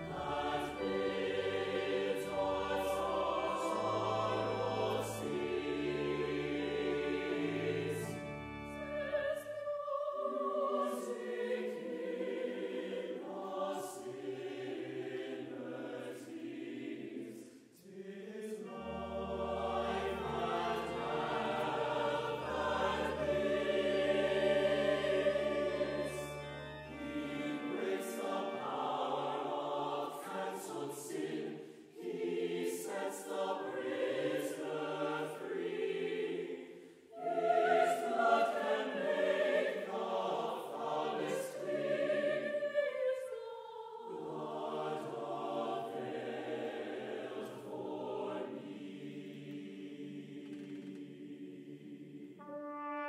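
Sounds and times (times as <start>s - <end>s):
brass and wind ensemble: 0.0s - 12.4s, 18.5s - 31.5s, 52.3s - 53.0s
choir singing sustained chords: 0.0s - 53.0s.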